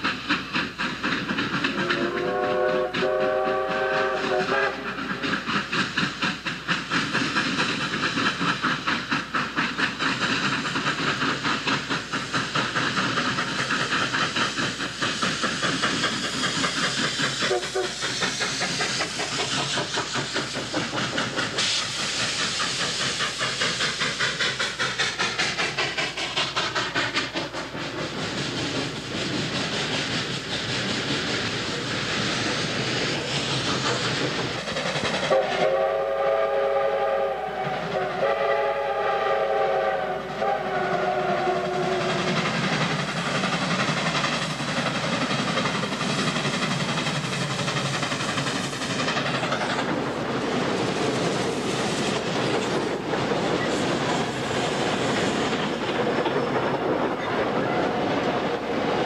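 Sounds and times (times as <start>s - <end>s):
steam locomotive exhaust beats: 0.0s - 59.0s
chime steam whistle: 1.8s - 4.9s, 35.3s - 42.2s.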